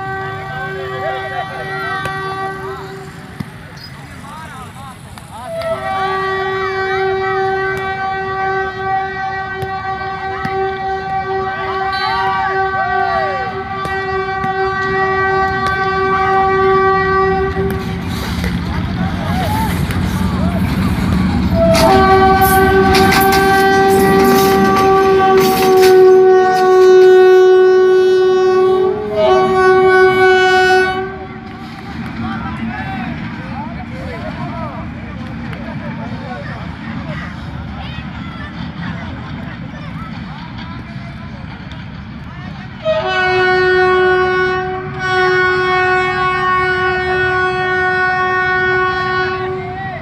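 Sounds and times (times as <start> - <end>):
locomotive horn blasts: 0.0 - 3.4, 5.5 - 18.1, 21.4 - 31.6, 42.8 - 49.9
wheels clattering over rails: 17.4 - 27.4.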